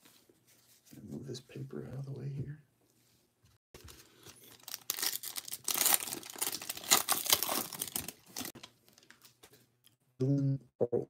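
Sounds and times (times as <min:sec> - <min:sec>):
plastic wrapper crackling and tearing: 0:03.8 - 0:09.4.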